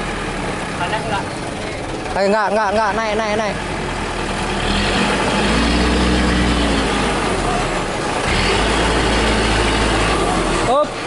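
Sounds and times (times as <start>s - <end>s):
diesel truck engine revving: 0.0s - 11.0s.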